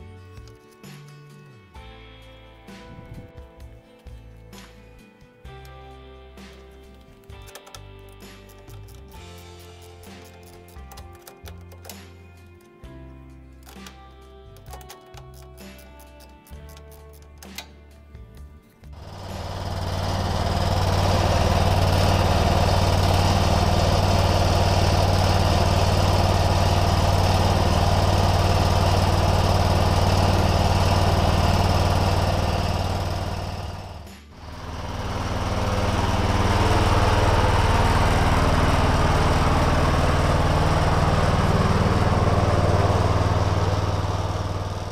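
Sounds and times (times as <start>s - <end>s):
tractor engine running: 6.4s - 12.3s, 18.9s - 44.9s.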